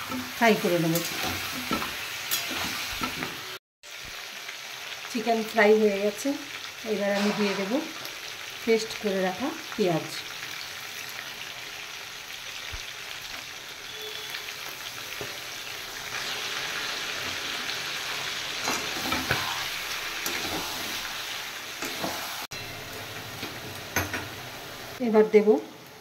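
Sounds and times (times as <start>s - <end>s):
food sizzling in hot oil: 0.0s - 26.0s
metal spatula scraping pan: 7.1s - 7.9s, 18.3s - 21.2s.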